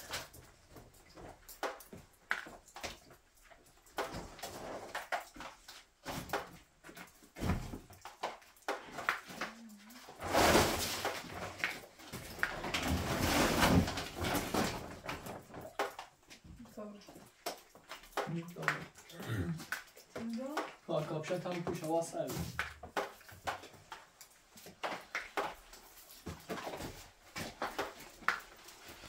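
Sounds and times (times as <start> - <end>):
knocks and clatter of handling: 0.0 - 29.0.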